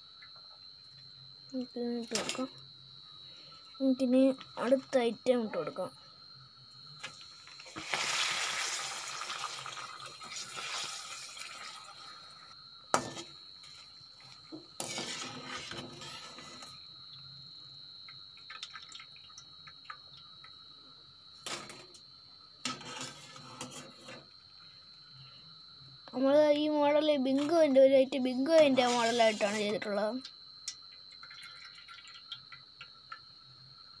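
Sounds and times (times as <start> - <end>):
pappadam sizzling in hot oil: 6.8 - 20.7, 21.4 - 24.7, 30.6 - 34.0.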